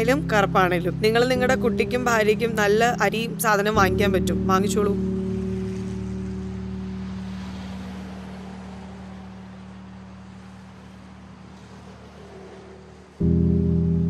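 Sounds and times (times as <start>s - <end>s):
held orchestral chord: 0.0s - 9.1s, 13.2s - 14.0s
low sustained drone: 0.0s - 14.0s.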